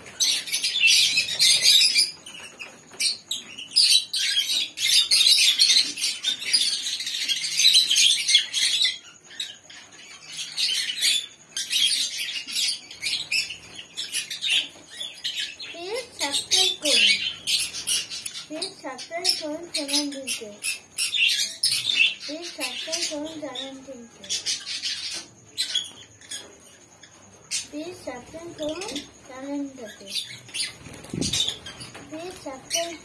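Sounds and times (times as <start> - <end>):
wings fluttering: 27.8 - 33.0.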